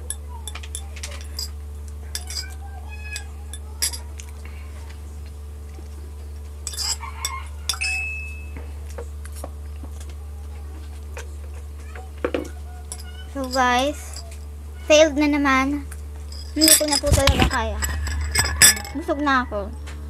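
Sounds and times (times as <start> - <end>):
steady low hum: 0.0 - 20.0
fork scraping ceramic plate: 2.1 - 4.0, 6.7 - 8.0.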